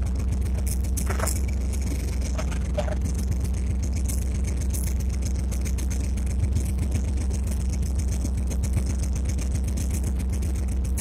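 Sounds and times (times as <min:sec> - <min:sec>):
diesel locomotive engine throbbing: 0:00.0 - 0:11.0
clicks and rattles: 0:00.6 - 0:02.7.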